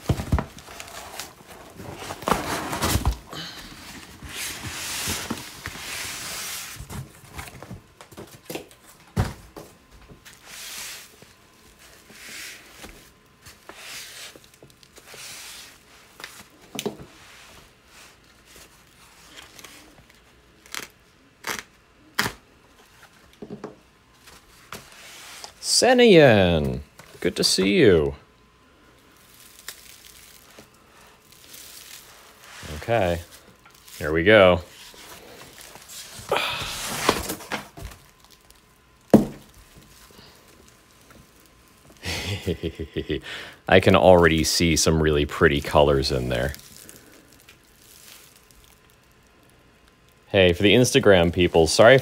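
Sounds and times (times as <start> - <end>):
cardboard tearing and crumpling: 0.0 - 7.8, 18.6 - 22.4, 29.1 - 43.1, 43.8 - 49.4.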